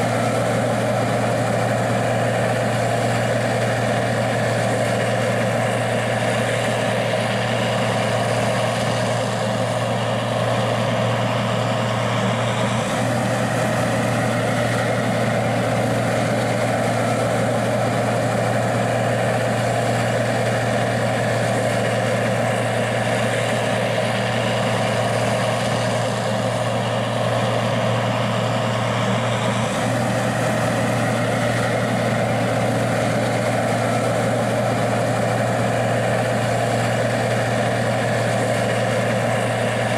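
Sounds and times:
diesel engine droning: 0.0 - 39.9.

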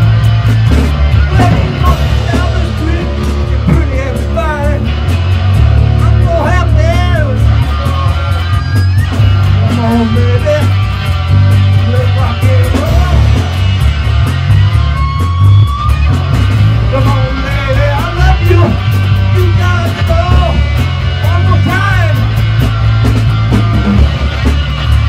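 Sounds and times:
bass guitar: 0.0 - 25.0
drums with cymbal strokes: 0.0 - 25.0
electric guitar lead lines: 0.0 - 25.0.

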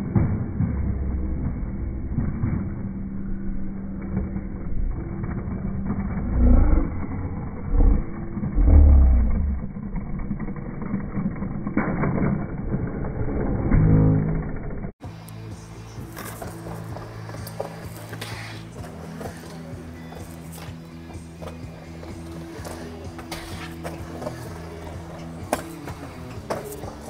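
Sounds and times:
road traffic rumbling: 14.2 - 27.0.

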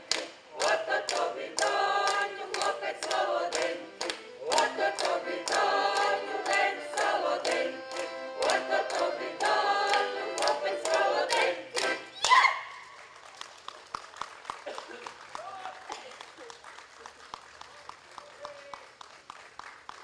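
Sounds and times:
group singing folk song: 0.0 - 12.2.

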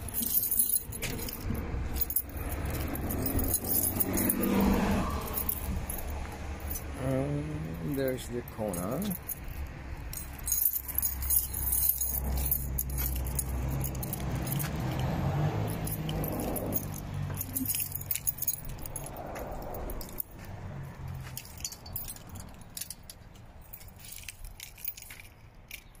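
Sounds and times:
low engine-like hum: 0.0 - 24.9
keys jangling: 0.0 - 26.0.

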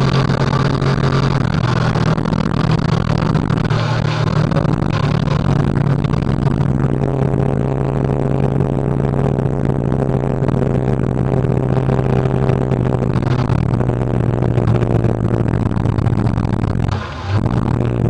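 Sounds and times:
motorcycle engine cruising: 0.0 - 18.0
wind and road noise: 0.0 - 18.0.

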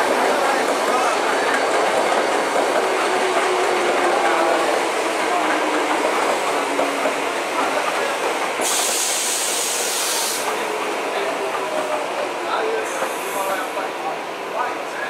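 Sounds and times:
electric train running past: 0.0 - 14.2
hiss: 8.5 - 10.6.

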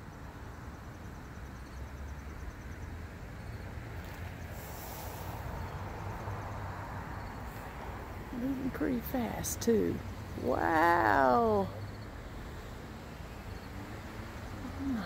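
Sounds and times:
insects chirping: 0.0 - 15.0
faint hiss: 4.4 - 6.6.

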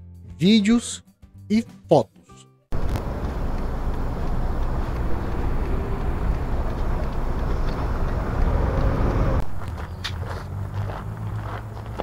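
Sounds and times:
road traffic: 2.7 - 12.0
low wind rumble: 2.8 - 12.0.

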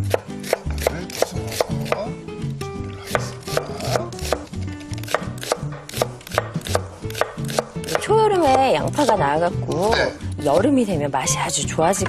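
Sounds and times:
knife chopping on wooden board: 0.0 - 2.1, 3.0 - 9.2.

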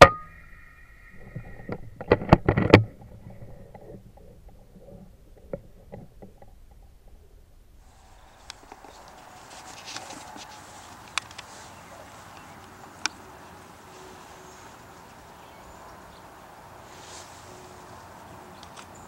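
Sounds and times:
light rustling: 7.8 - 15.8, 16.8 - 19.0
sharp clicks: 12.3 - 13.2.

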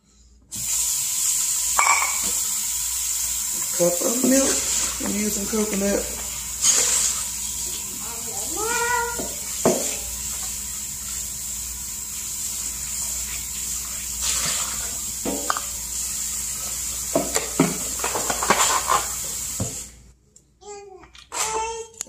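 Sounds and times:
running water: 0.6 - 20.0
kitchen handling knocks and clicks: 9.1 - 10.0, 17.1 - 19.0.

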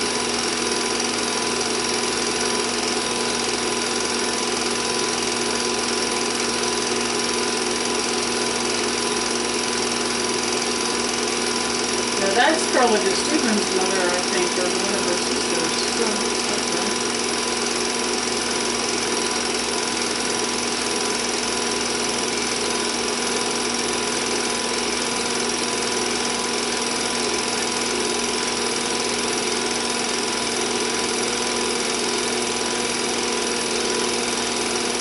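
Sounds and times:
film projector clattering: 0.0 - 35.0
projector hum: 11.4 - 20.2.

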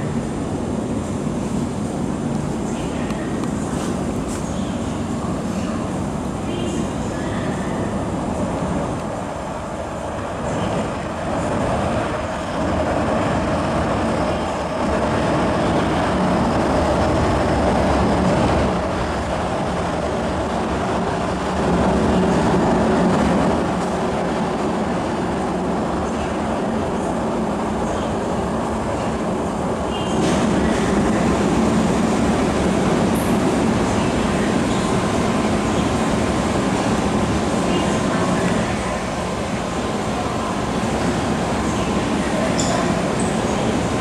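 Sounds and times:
train wheels rumbling on rail: 0.0 - 44.0.

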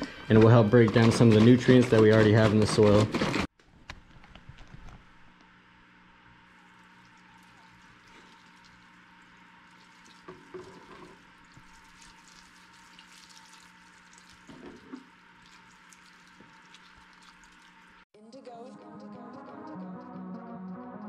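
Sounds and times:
water trickling onto soil: 6.5 - 10.5, 11.4 - 18.0.

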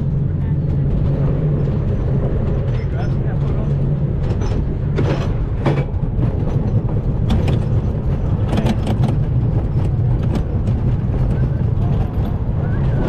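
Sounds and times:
roller coaster clattering knocks: 0.0 - 13.0
roller coaster wheels rumbling: 0.0 - 13.0.

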